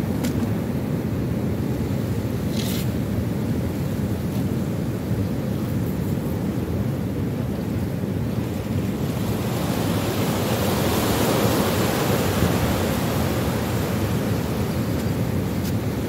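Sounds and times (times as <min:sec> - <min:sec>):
sea waves washing: 0:08.3 - 0:16.0.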